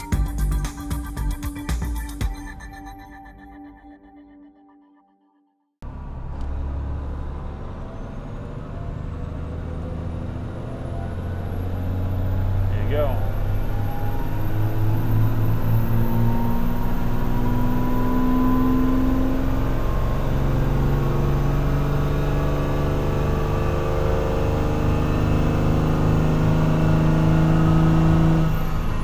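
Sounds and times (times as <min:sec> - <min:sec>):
diesel engine pulling under load: 0:05.8 - 0:29.0.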